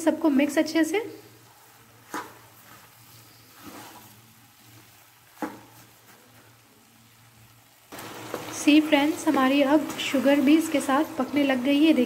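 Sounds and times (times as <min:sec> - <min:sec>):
faint sizzle: 0:00.0 - 0:12.0
spoon scraping pan: 0:01.6 - 0:06.4.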